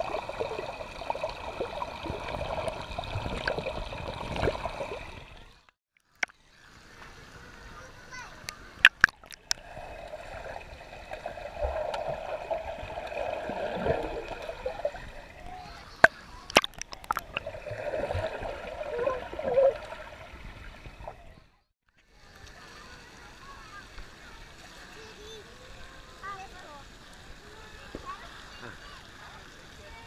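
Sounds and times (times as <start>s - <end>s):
muffled underwater churning: 0.0s - 5.7s, 8.9s - 21.4s.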